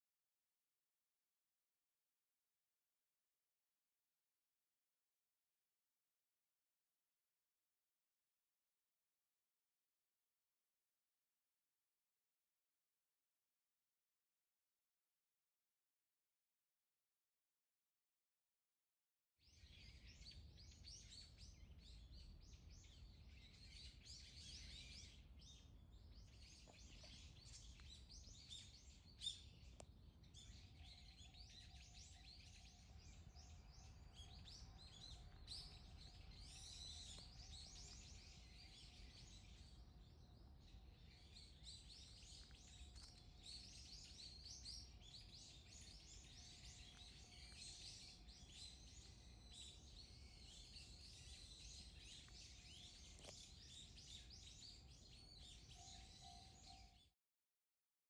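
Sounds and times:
small birds chirping: 19.4 - 57.1.

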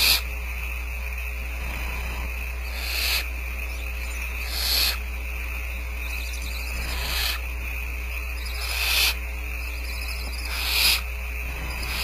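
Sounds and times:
low electrical hum: 0.0 - 12.0
owl chicks rasping hiss: 0.0 - 12.0.

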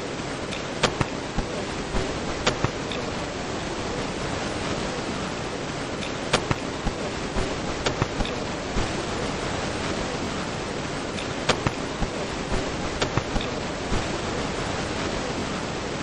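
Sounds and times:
steady room hiss: 0.0 - 16.0
sharp clicks and light knocks: 0.5 - 3.1, 6.0 - 8.4, 11.1 - 12.1.

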